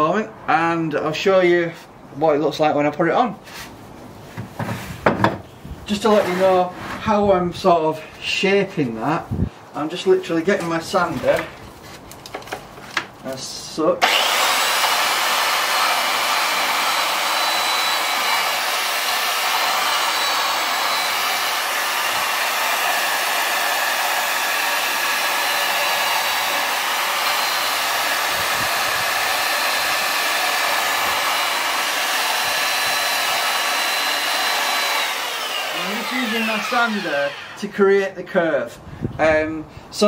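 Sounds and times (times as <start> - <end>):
electric sander on wood: 14.0 - 37.8.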